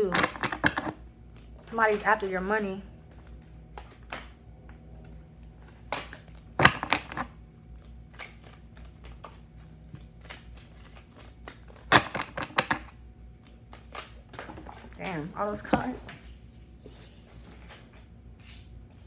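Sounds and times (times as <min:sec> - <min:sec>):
cards riffling and slapping: 0:03.1 - 0:15.0.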